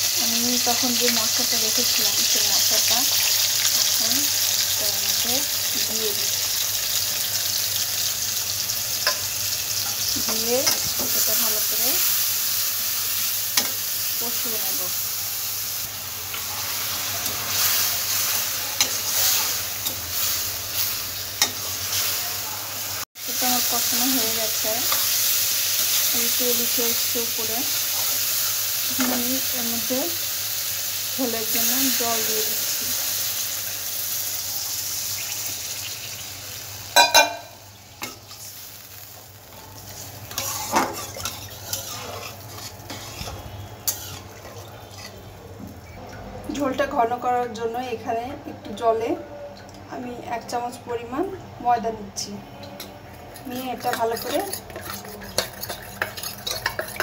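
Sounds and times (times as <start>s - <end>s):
vegetables sizzling in oil: 0.0s - 49.0s, 53.2s - 57.0s
metal spoon stirring and scraping: 16.3s - 22.2s, 24.1s - 27.2s, 37.0s - 45.3s, 52.6s - 57.0s
spoon clinking on pan: 37.0s - 38.2s, 52.7s - 57.0s
metal spatula scraping pan: 39.7s - 45.3s, 52.8s - 57.0s.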